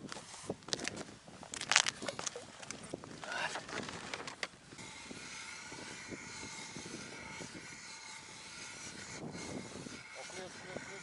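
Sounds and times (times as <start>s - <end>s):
ice auger grinding scrape: 3.5s - 11.0s.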